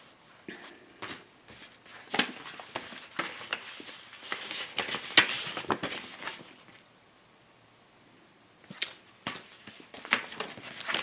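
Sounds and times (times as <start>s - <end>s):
paper cards being shuffled: 1.0s - 6.8s, 8.7s - 11.0s.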